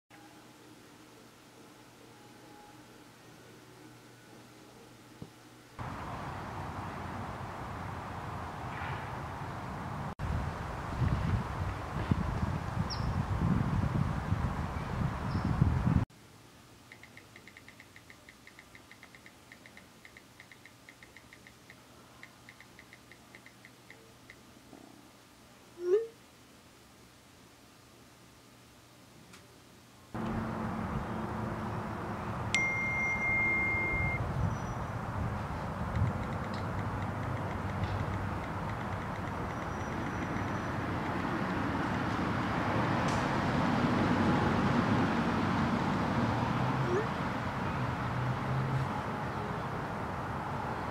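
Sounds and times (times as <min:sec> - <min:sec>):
road traffic: 0:05.5 - 0:16.0, 0:30.2 - 0:50.9
phone keyboard clicks: 0:16.9 - 0:23.8, 0:35.9 - 0:41.4.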